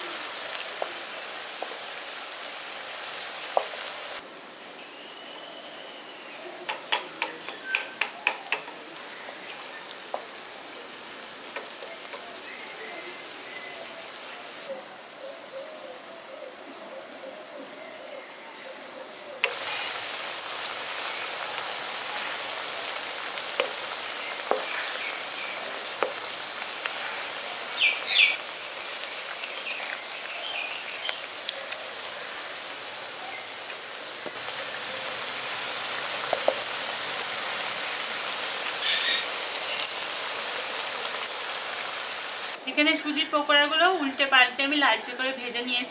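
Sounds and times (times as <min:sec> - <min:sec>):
food deep-frying in hot oil: 0:00.0 - 0:04.2, 0:08.3 - 0:14.7, 0:19.4 - 0:42.6
bird chirping: 0:04.8 - 0:09.9, 0:27.6 - 0:28.4
wooden spatula knocking on pan: 0:23.6 - 0:23.8, 0:24.4 - 0:24.7.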